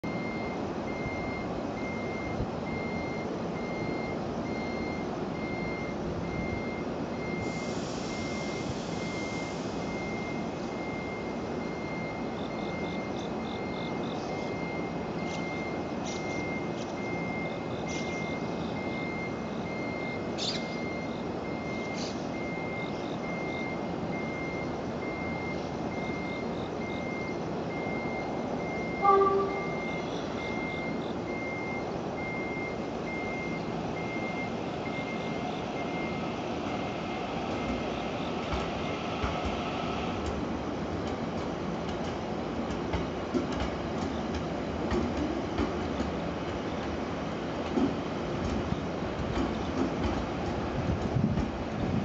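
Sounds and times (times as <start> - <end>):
electronic warning beeps: 0.0 - 39.3
electric train hum: 22.8 - 52.0
train horn: 29.0 - 30.0.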